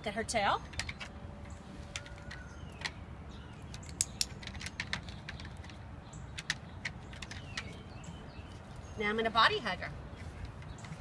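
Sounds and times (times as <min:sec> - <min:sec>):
sharp clicks and handling noises: 0:00.6 - 0:07.9.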